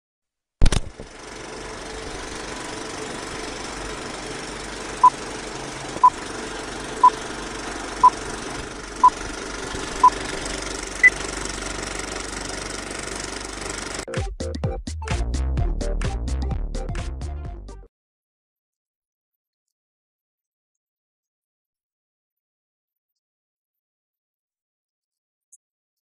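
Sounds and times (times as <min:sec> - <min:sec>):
film projector clatter: 0:00.6 - 0:14.1.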